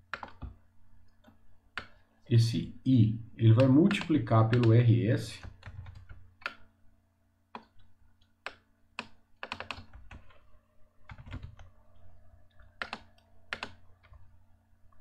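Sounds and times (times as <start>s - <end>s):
faint steady low hum: 0.0s - 15.0s
computer keyboard typing: 0.1s - 0.6s, 3.6s - 4.8s, 5.4s - 6.7s, 7.5s - 11.7s, 12.5s - 14.3s.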